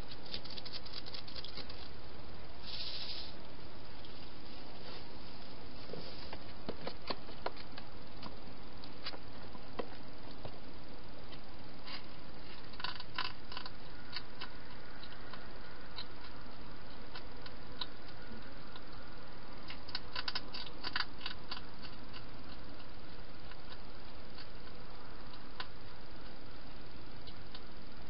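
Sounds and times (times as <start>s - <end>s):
hedgehog eating clicks and crunches: 0.0s - 2.0s, 11.2s - 26.4s
steady background hiss: 0.0s - 28.0s.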